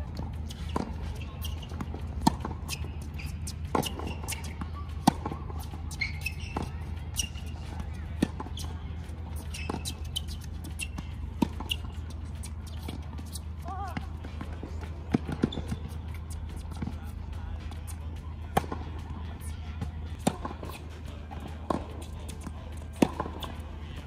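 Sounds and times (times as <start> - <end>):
tennis ball bouncing: 0.0 - 24.0
tennis racket striking ball: 0.4 - 17.0, 20.2 - 23.6
short high squeaks: 2.7 - 4.6, 5.9 - 7.6.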